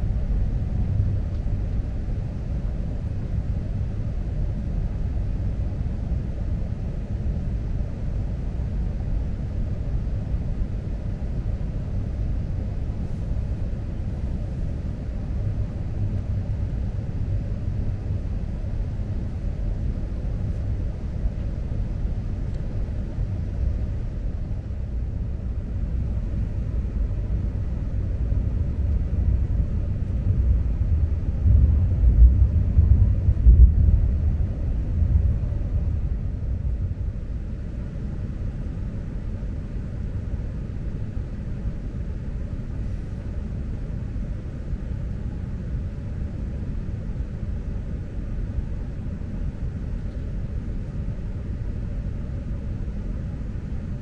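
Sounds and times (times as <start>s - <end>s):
train cabin rumble: 25.3s - 37.8s.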